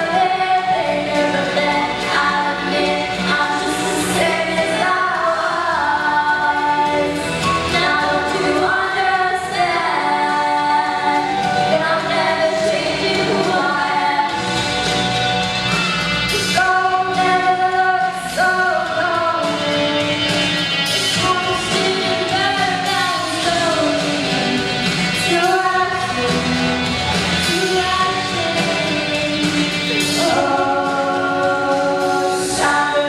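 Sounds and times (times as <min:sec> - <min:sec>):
women singing a duet: 0:00.0 - 0:14.9, 0:16.3 - 0:33.0
backing music: 0:00.0 - 0:33.0.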